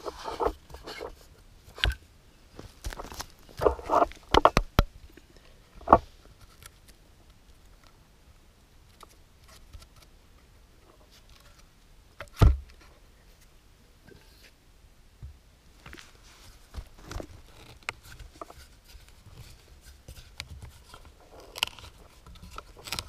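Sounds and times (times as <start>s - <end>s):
hand auger scrapes and clicks: 17.1s - 23.0s.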